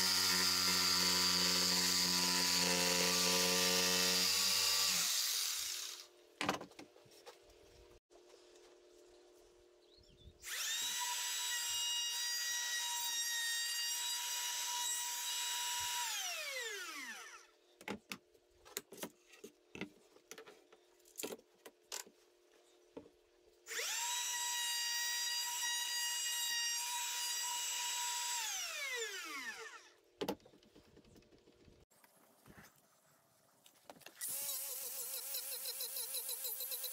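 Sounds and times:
router motor whining: 0:00.0 - 0:06.1, 0:10.4 - 0:17.5, 0:23.7 - 0:30.0.

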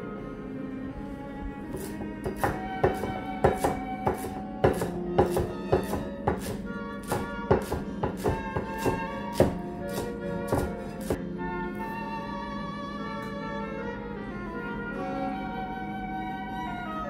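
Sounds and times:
instrumental background music: 0:00.0 - 0:17.0
cleaver chopping on wooden board: 0:01.8 - 0:11.2.

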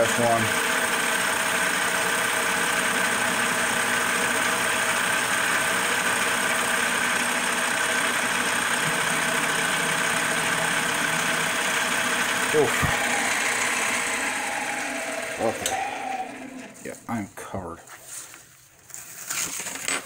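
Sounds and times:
lathe cutting metal: 0:00.0 - 0:17.0.

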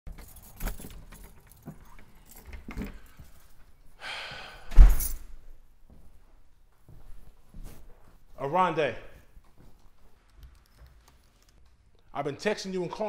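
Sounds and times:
keys jangling: 0:00.1 - 0:03.8, 0:04.7 - 0:05.4
door shutting with a thud: 0:04.7 - 0:05.2.

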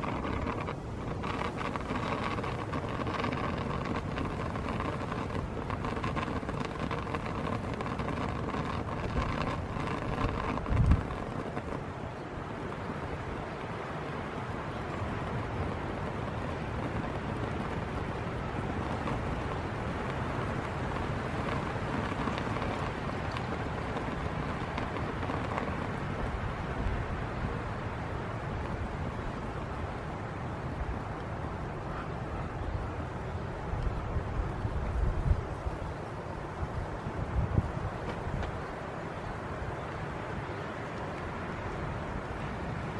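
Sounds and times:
pot of rice boiling: 0:00.0 - 0:32.0
wind buffeting microphone: 0:00.0 - 0:42.9.

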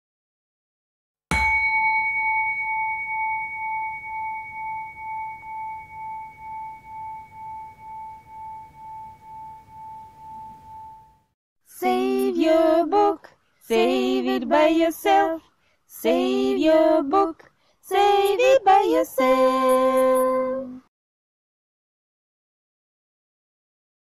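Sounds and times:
struck bell tone pulsing: 0:01.3 - 0:11.3.

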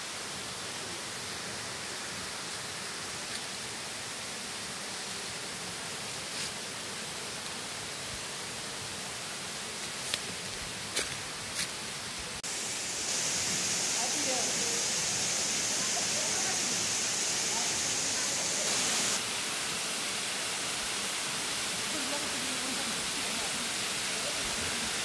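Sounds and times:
waterfall rushing: 0:12.4 - 0:25.0.

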